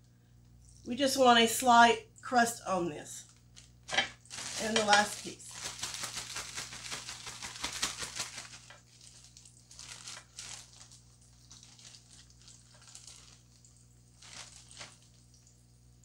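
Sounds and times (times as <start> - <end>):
plastic bag crinkling: 3.2 - 15.5
plastic bag shaken: 3.9 - 13.6, 14.2 - 15.1.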